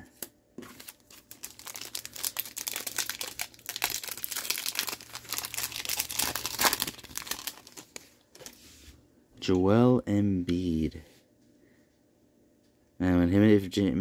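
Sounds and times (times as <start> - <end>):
wrapper tearing and crinkling: 0.8 - 8.5.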